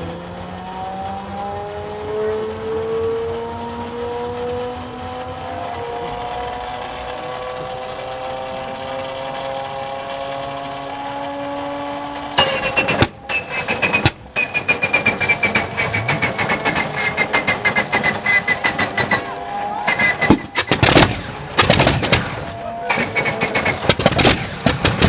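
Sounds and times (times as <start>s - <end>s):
radial engine firing: 0.0s - 25.0s
engine starter whining: 4.4s - 25.0s.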